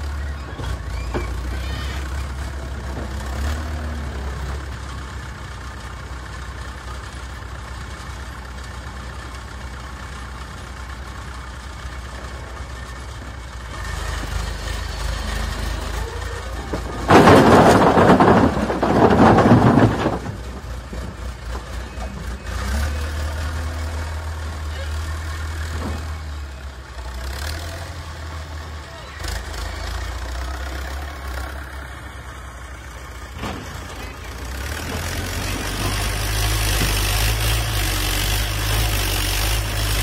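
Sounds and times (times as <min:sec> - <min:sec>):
diesel engine revving: 0:00.0 - 0:40.0
concrete blocks clattering into trolley: 0:16.5 - 0:20.9.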